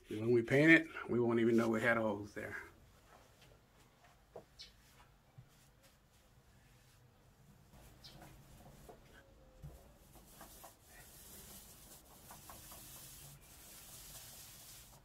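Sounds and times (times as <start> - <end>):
paint roller rubbing on wall: 7.7 - 15.0.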